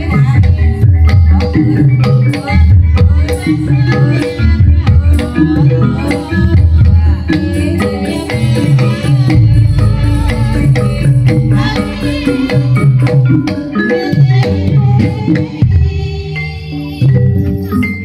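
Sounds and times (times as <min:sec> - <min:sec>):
steady drumming: 0:00.0 - 0:16.1
struck tuned percussion melodies: 0:00.0 - 0:18.0.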